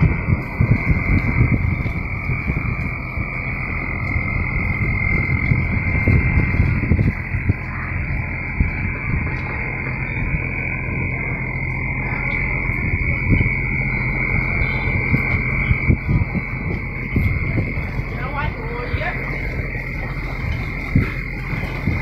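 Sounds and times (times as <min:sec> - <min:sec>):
frogs calling in chorus: 0:00.0 - 0:22.0
low rumble: 0:00.0 - 0:22.0.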